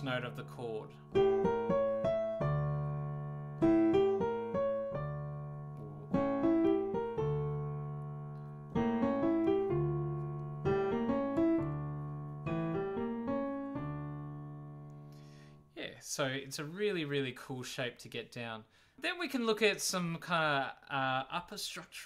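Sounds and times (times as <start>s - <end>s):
piano playing arpeggios: 0.0s - 15.6s.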